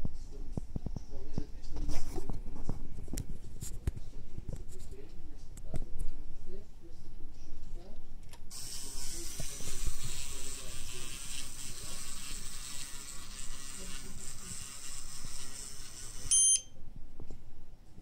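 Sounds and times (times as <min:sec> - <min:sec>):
small motor and gears whirring: 0:08.5 - 0:16.4
short high beep: 0:16.3 - 0:16.8.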